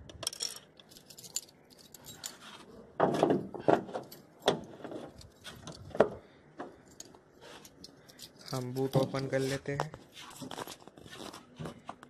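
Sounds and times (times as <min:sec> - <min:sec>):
keys jangling: 0:00.2 - 0:02.6, 0:06.8 - 0:09.3.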